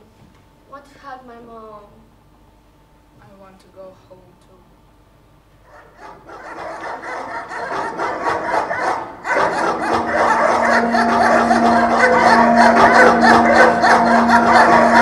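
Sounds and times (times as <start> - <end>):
audience applause: 9.4 - 15.0
music: 9.6 - 15.0
held low note: 9.7 - 15.0.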